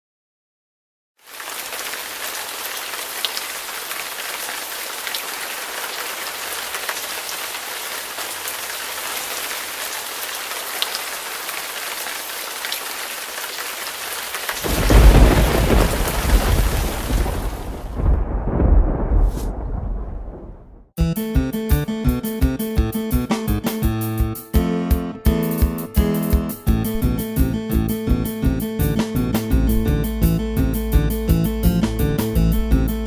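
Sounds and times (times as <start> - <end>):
steady rain: 1.2 - 20.6
loud thunderclap: 14.6 - 20.9.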